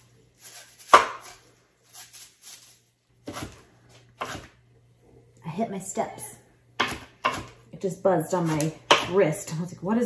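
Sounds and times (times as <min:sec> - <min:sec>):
knife chopping on cutting board: 0:00.8 - 0:01.4, 0:03.2 - 0:03.6, 0:04.2 - 0:04.5, 0:06.8 - 0:07.6, 0:08.5 - 0:09.2.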